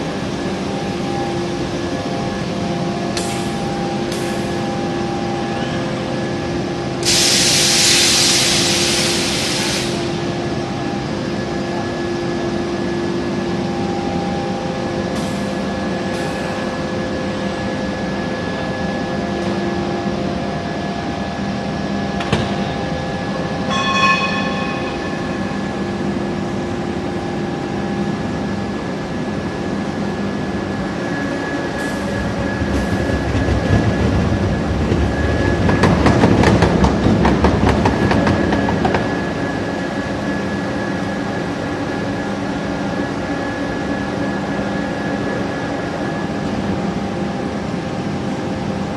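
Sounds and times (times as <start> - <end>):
machinery humming: 0.0 - 48.9
loud hiss: 7.0 - 10.1
short metallic ring: 23.7 - 25.9.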